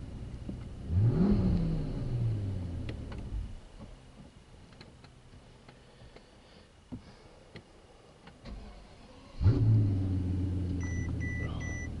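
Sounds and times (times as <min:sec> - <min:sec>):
car engine idling: 0:00.0 - 0:06.5
car chime beeping: 0:10.8 - 0:12.0.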